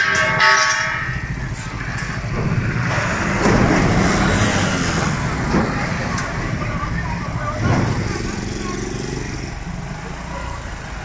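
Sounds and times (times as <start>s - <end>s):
traffic noise: 0.0s - 11.0s
truck driving past: 1.0s - 11.0s.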